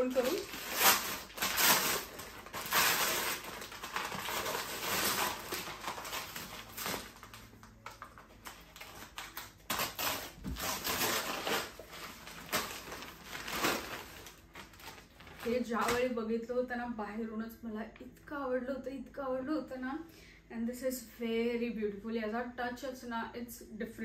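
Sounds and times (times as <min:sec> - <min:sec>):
wrapping rustling: 0:00.0 - 0:16.1.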